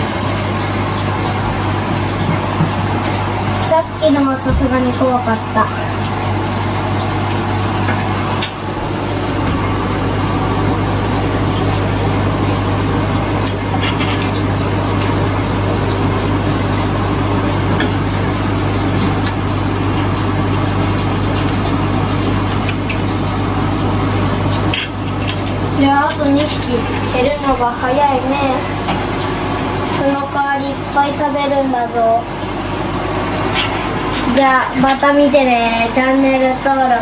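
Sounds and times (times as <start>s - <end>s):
rushing water: 0.0s - 37.0s
water pump humming: 0.0s - 37.0s.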